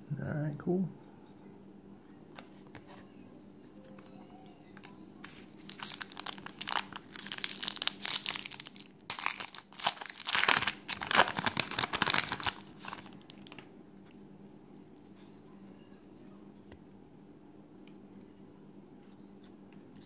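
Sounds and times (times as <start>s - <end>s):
foil wrapper crinkling: 5.2s - 13.6s.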